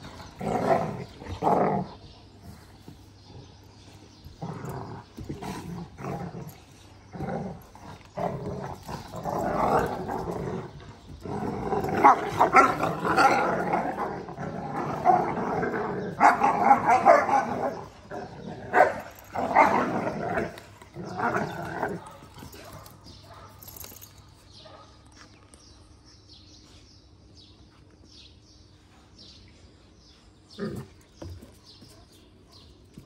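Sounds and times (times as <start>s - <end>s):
puppies growling: 0.0s - 24.1s.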